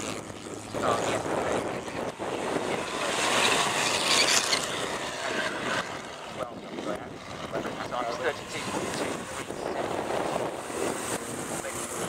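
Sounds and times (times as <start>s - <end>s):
racing car engines accelerating: 0.6s - 6.5s.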